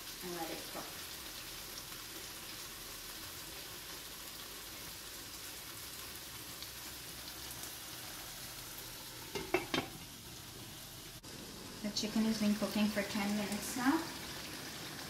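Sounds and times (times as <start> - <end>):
chicken sizzling in a frying pan: 0.0 - 15.0.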